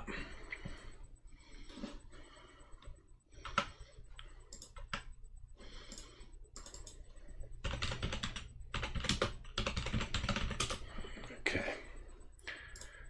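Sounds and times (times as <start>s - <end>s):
keyboard keys clicking: 4.5s - 5.0s, 5.9s - 7.0s, 7.6s - 10.8s.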